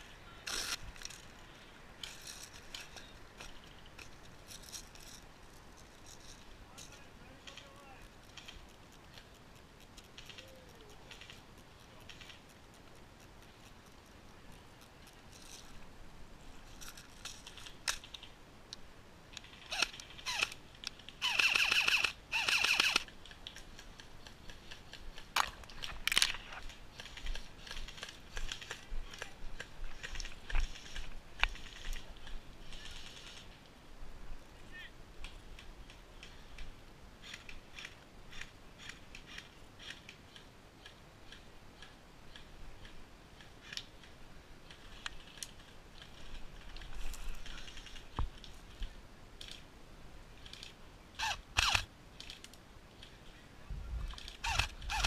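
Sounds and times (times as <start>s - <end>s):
sharp clicks and snaps: 2.0s - 15.8s, 16.7s - 33.6s, 35.2s - 48.6s, 50.4s - 53.1s
airsoft gun firing bursts: 21.3s - 23.1s.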